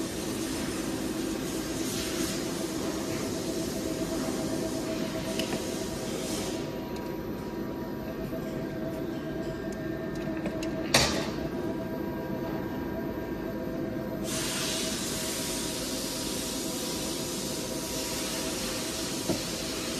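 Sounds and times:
machine mechanical hum: 0:00.0 - 0:19.9
loud steady hiss: 0:14.2 - 0:19.9.

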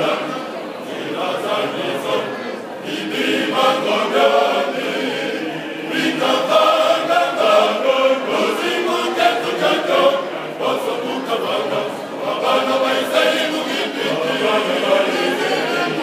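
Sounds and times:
male choir singing: 0:00.0 - 0:16.0.

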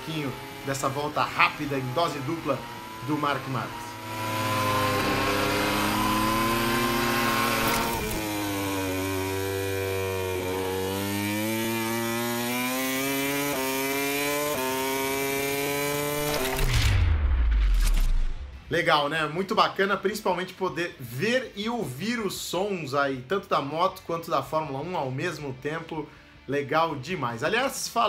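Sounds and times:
racing car turbo engine revving: 0:00.0 - 0:18.6
racing motorcycle engine revving: 0:00.0 - 0:18.6.

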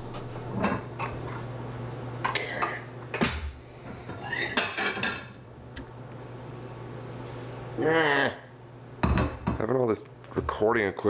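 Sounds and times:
ceramic plates clinking: 0:04.0 - 0:05.4.

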